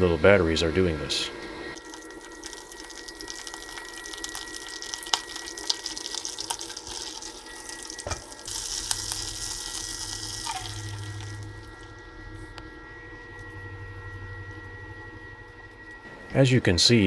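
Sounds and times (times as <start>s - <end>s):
butter sizzling in frying pan: 1.8s - 11.9s.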